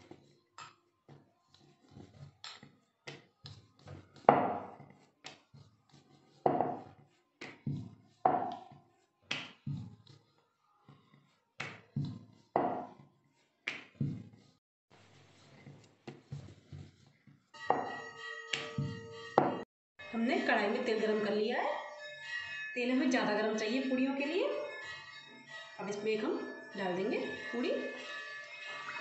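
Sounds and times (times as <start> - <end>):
rolling pin knocking on marble: 6.5 - 8.7.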